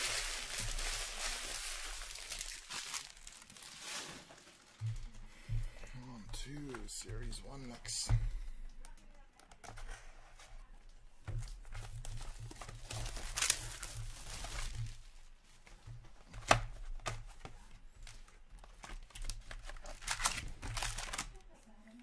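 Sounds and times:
plastic wrap crinkling and tearing: 0.0 - 5.2, 11.4 - 15.6, 18.0 - 22.0
foil packs handled: 0.0 - 5.3, 11.3 - 17.4, 18.0 - 22.0.

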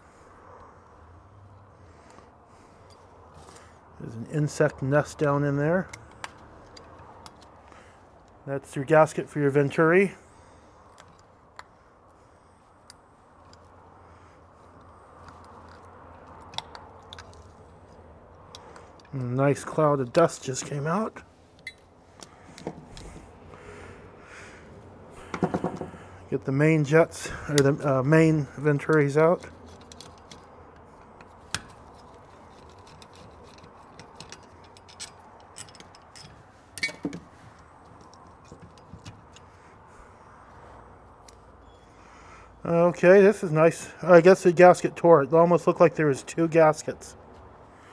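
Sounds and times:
hand tools clicking on metal parts: 5.0 - 8.4, 14.7 - 23.2, 27.2 - 39.6.

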